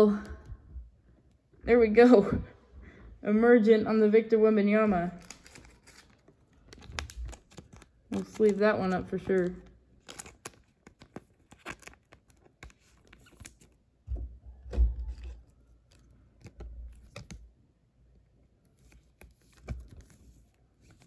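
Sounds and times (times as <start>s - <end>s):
plastic sleeve clicks and rustles: 5.2s - 13.8s, 15.0s - 17.5s, 18.7s - 21.0s.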